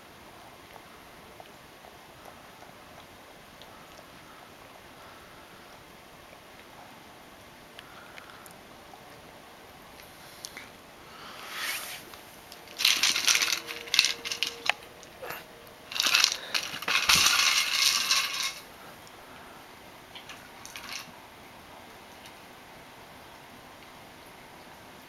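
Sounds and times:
treats rattling in plastic bottle: 12.5s - 18.7s, 20.2s - 21.1s.

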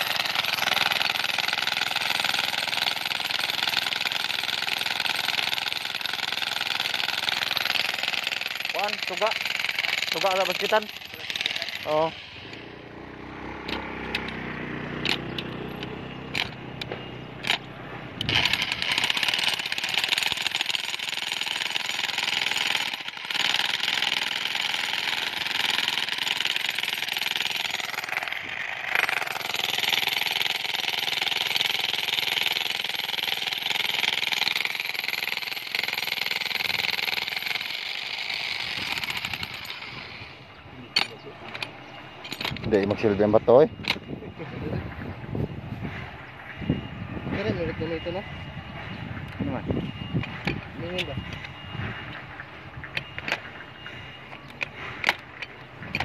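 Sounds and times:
demolition hammer chiselling rock: 0.0s - 12.1s, 18.2s - 40.0s.

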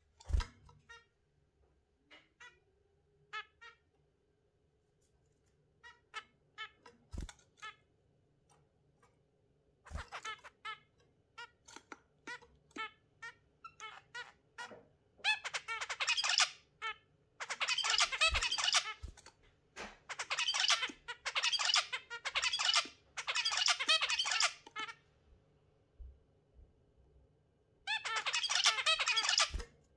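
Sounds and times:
finches and budgerigars calling: 15.3s - 16.7s, 17.4s - 19.0s, 20.1s - 24.9s, 27.9s - 29.6s.

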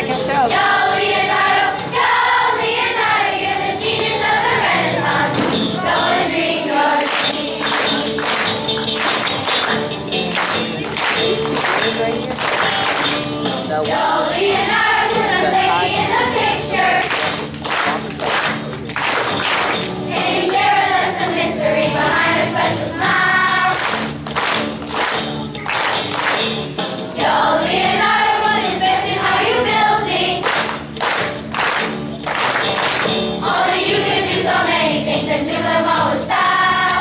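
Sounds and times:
children's choir singing: 0.0s - 17.4s, 19.5s - 24.2s, 27.1s - 30.7s, 33.4s - 37.0s
musical accompaniment: 0.0s - 37.0s
clapping in time: 6.9s - 13.4s, 17.0s - 19.9s, 23.7s - 26.6s, 30.4s - 33.2s.

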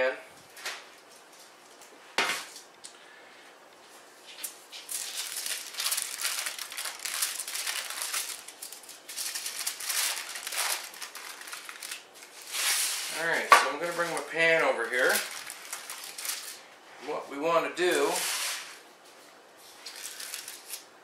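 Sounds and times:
aluminium foil crinkling: 4.3s - 16.7s, 19.6s - 21.0s.

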